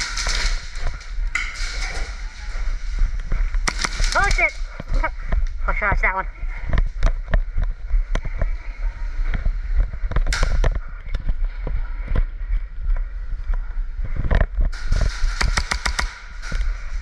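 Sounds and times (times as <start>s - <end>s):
low rumble: 0.0s - 17.0s
airsoft guns firing: 3.6s - 4.6s, 14.8s - 16.6s.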